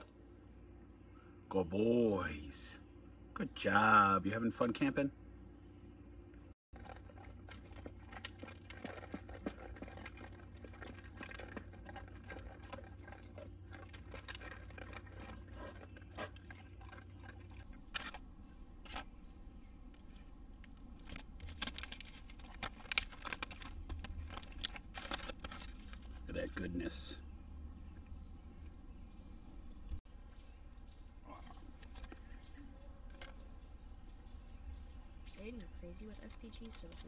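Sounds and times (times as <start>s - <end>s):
collar tags jingling: 6.8s - 20.2s.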